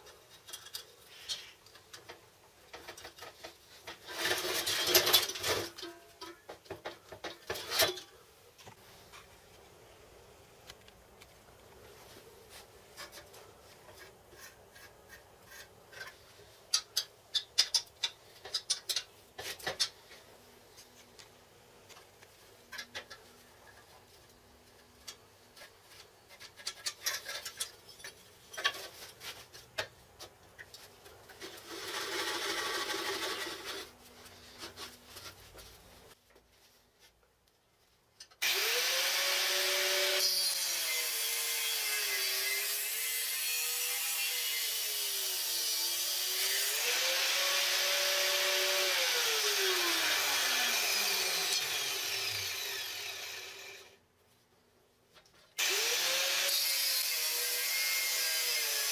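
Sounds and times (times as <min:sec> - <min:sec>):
steel parts clicking and knocking: 0:15.9 - 0:20.0
angle grinder cutting steel: 0:38.4 - 0:54.0, 0:55.6 - 0:58.9.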